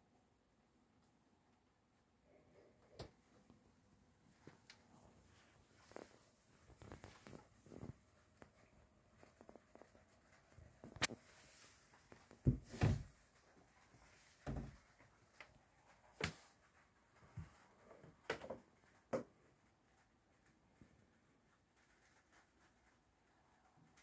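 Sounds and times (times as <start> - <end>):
soft thumps and sharp knocks: 12.1 - 13.2, 14.4 - 14.9.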